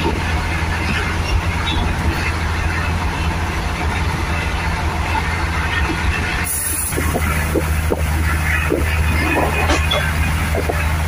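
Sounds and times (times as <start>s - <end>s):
train wheels rumbling on rails: 0.0s - 11.0s
rushing air: 6.0s - 10.6s.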